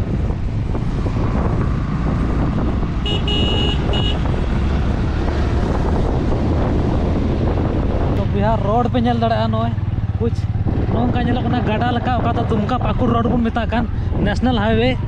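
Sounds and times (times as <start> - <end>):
heavy trucks on road: 0.0 - 15.0
motorcycle rumble: 0.0 - 15.0
wind buffeting microphone: 0.0 - 15.0
high-pitched vehicle horn beeps: 3.0 - 4.2.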